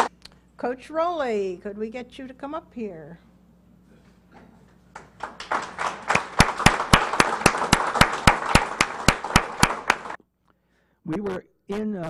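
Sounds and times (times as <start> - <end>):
person clapping sharply: 4.9 - 10.2
audience applauding: 5.0 - 10.2.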